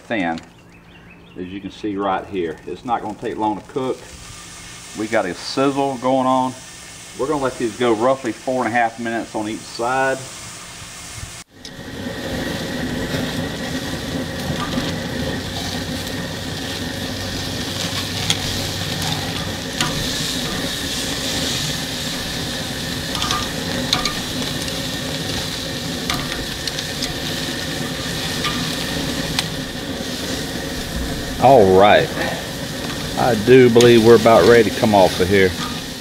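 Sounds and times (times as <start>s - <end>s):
steak sizzling on grill: 2.3s - 36.0s
tongs clicking on grate: 17.8s - 20.9s, 23.1s - 25.4s, 26.0s - 27.3s, 27.9s - 29.5s.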